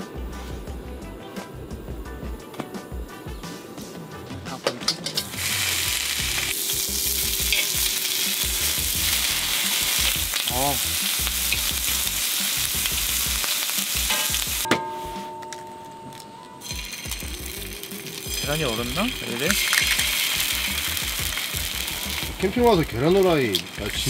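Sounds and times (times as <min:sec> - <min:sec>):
bacon sizzling: 0:05.2 - 0:14.7, 0:16.1 - 0:24.0.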